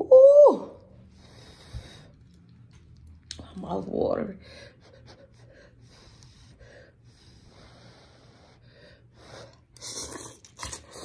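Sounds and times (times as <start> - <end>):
breathing: 1.1 - 2.2, 5.4 - 9.7
noodles slurping: 9.5 - 11.0.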